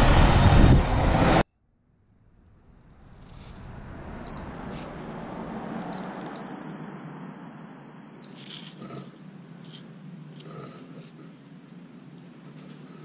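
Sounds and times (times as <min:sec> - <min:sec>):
multimeter beeping: 0:05.9 - 0:08.5.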